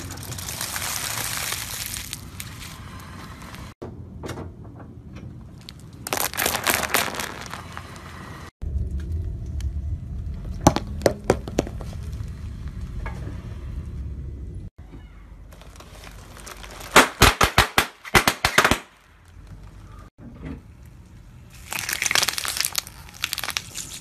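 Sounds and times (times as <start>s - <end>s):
bath bombs cracking: 0.0s - 2.8s, 6.0s - 8.0s, 15.6s - 18.8s, 21.5s - 24.0s
tyre crunching eggshells: 0.0s - 2.8s, 6.0s - 8.1s, 15.6s - 17.2s, 21.5s - 24.0s
low rumble: 6.9s - 14.8s.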